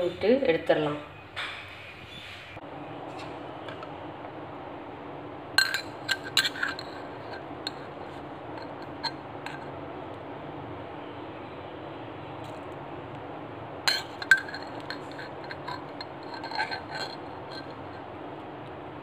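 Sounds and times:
steady background hum: 0:00.0 - 0:19.0
spoon clinking on metal pot: 0:05.6 - 0:09.7, 0:13.9 - 0:18.0.

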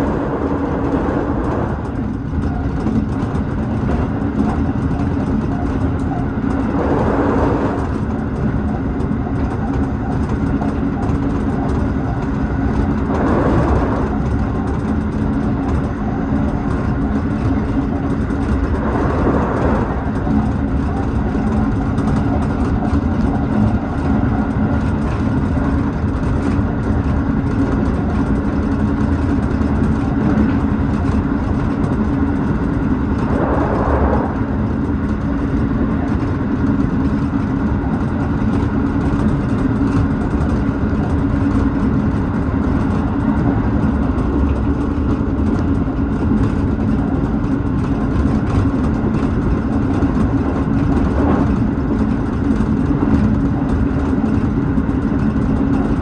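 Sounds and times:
rush of noise: 0:00.0 - 0:24.2, 0:30.9 - 0:37.4
train motor and gear hum: 0:00.0 - 0:56.0
wheel on rail rumble: 0:00.0 - 0:56.0.

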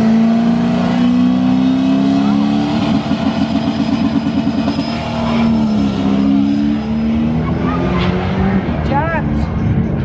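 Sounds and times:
drag car engines at high revs: 0:00.0 - 0:09.7.

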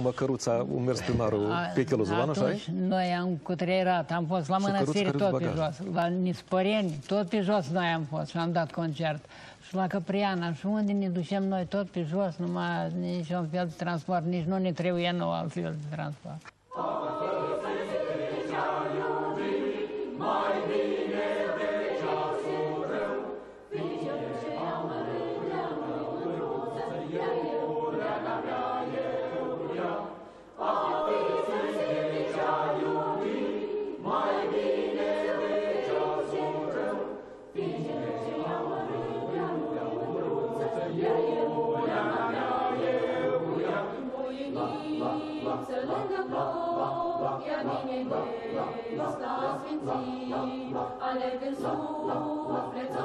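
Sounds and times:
mixed choir singing: 0:16.7 - 0:53.0.

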